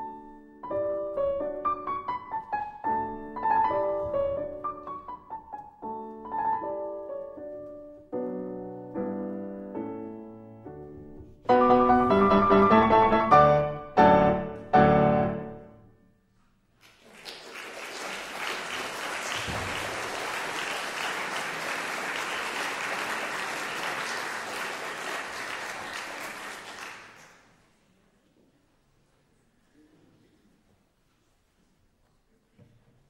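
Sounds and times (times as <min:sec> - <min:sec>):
grand piano chords: 0:00.0 - 0:16.2
audience applauding: 0:16.8 - 0:27.6.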